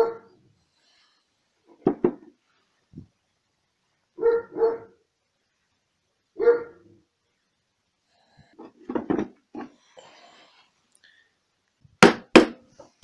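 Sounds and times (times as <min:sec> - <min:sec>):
dog barking: 0:00.0 - 0:00.4, 0:04.2 - 0:05.0, 0:06.4 - 0:06.9.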